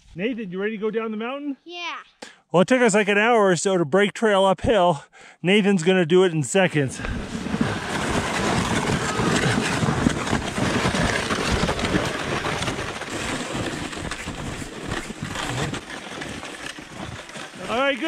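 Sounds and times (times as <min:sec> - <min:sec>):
sleds scraping over snow: 0:06.5 - 0:18.0.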